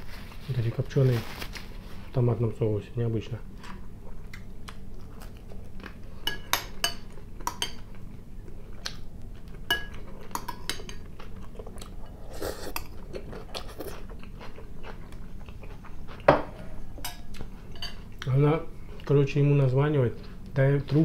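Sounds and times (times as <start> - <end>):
chewing: 3.6 - 6.0, 7.8 - 16.3.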